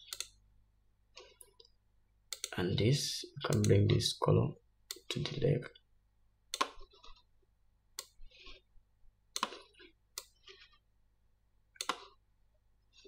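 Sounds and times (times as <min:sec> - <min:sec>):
computer mouse clicking: 0:00.0 - 0:00.4, 0:02.3 - 0:02.6, 0:03.4 - 0:04.0, 0:04.9 - 0:05.4, 0:06.5 - 0:07.3, 0:07.9 - 0:08.6, 0:09.3 - 0:10.8, 0:11.7 - 0:12.2.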